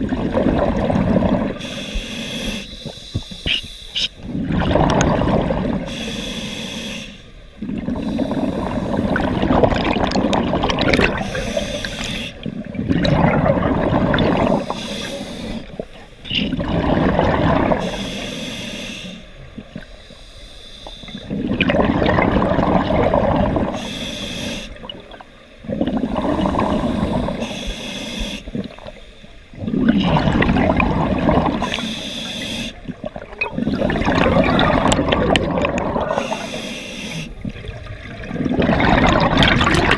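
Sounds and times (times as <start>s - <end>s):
rush of exhaled bubbles: 0.0s - 1.6s, 4.2s - 5.9s, 7.6s - 14.9s, 16.3s - 18.0s, 21.3s - 23.8s, 24.8s - 27.4s, 29.5s - 31.9s, 32.8s - 36.5s, 37.4s - 39.9s
regulator hiss on inhale: 1.6s - 4.2s, 5.9s - 7.4s, 8.0s - 9.2s, 11.2s - 12.5s, 14.6s - 16.3s, 17.8s - 21.3s, 23.7s - 24.9s, 26.2s - 29.4s, 31.6s - 32.9s, 36.1s - 37.4s.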